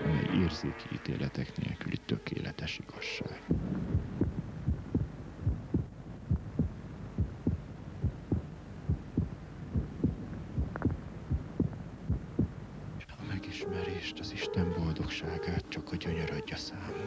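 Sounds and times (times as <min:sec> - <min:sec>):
faint low hum: 0:00.0 - 0:17.0
heartbeat thumps: 0:03.5 - 0:12.8.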